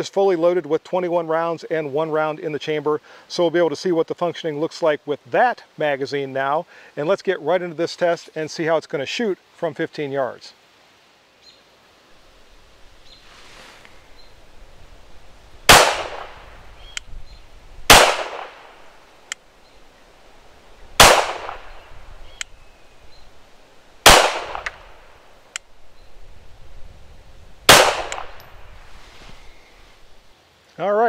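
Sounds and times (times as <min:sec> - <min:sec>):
pistol shots: 0:15.7 - 0:16.4, 0:17.9 - 0:18.8, 0:21.0 - 0:21.9, 0:24.0 - 0:24.9, 0:27.7 - 0:28.4.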